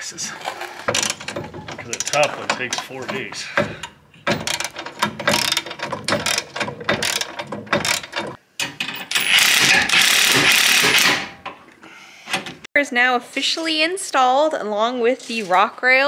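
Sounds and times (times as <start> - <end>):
impact wrench hammering: 0.9 - 11.4.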